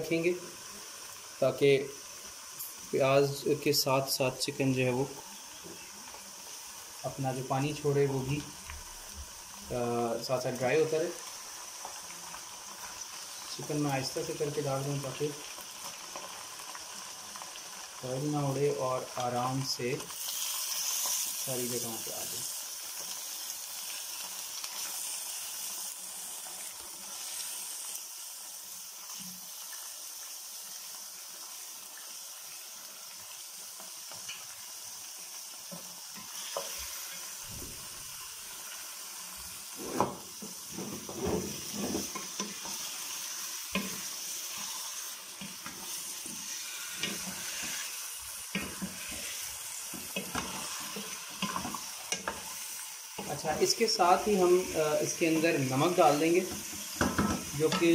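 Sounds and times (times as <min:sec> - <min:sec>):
chicken sizzling in hot oil: 0:00.0 - 0:57.9
spatula scraping a pot: 0:39.8 - 0:42.8.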